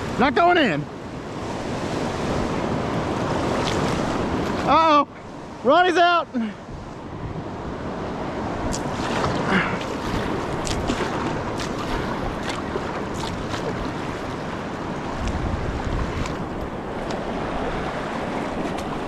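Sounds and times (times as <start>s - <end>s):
water splashing: 3.0s - 5.0s, 8.6s - 19.0s
wind gust on microphone: 6.6s - 19.0s
river water rushing over rocks: 7.6s - 19.0s.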